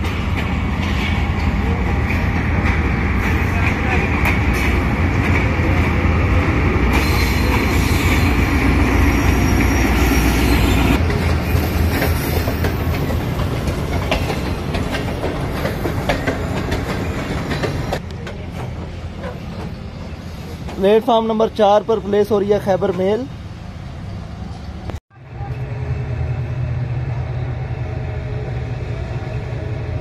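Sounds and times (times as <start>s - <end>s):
diesel locomotive engine rumble: 0.0s - 30.0s
high wheel squeal: 6.9s - 13.4s
wheels clicking over rail joints: 11.0s - 19.8s.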